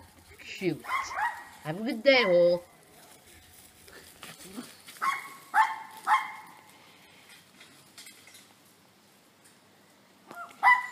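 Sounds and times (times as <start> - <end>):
small dog yapping: 0.8 - 1.6, 5.0 - 6.6, 10.3 - 10.9.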